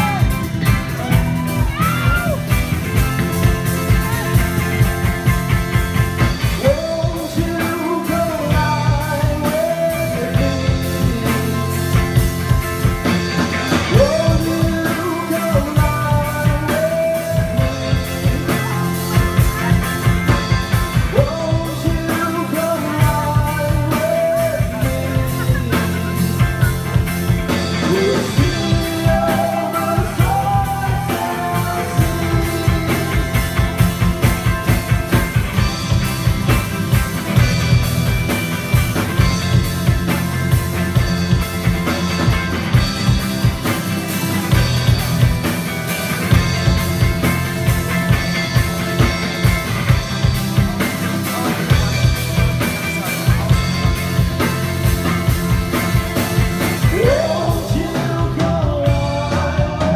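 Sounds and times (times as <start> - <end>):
rock band playing: 0.0 - 59.9
person singing: 6.4 - 12.2, 13.7 - 27.0, 27.7 - 34.0, 56.8 - 59.9.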